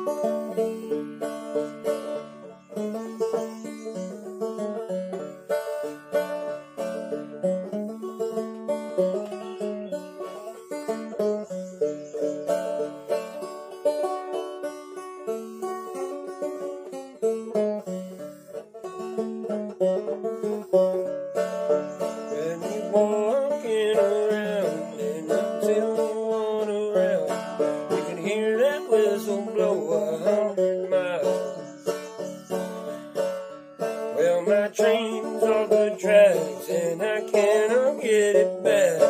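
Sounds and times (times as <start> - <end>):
banjo playing: 0.0 - 39.0
man singing: 22.3 - 32.0, 34.1 - 39.0.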